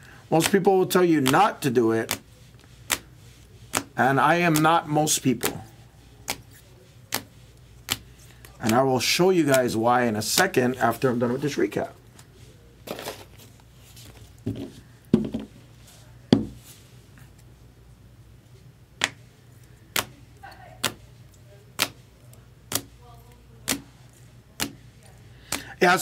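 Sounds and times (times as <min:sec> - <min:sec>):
cards knocking on table: 0:14.5 - 0:15.5, 0:16.3 - 0:16.6.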